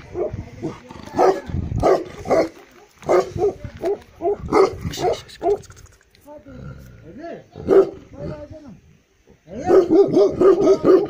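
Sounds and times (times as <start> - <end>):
dog barking deeply: 1.1 - 5.6, 7.6 - 8.3, 9.5 - 11.0.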